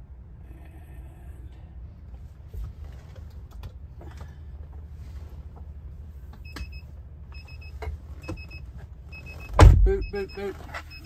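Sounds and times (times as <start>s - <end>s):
dull thump: 9.5s - 10.0s.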